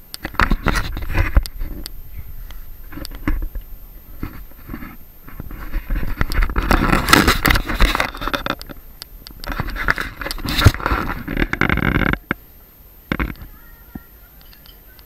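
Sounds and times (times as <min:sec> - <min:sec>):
clothing rubbing against microphone: 0:00.2 - 0:12.2.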